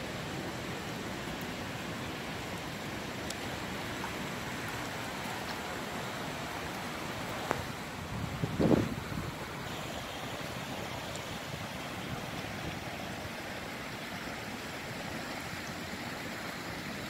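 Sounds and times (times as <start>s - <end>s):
light wind: 0.0s - 17.0s.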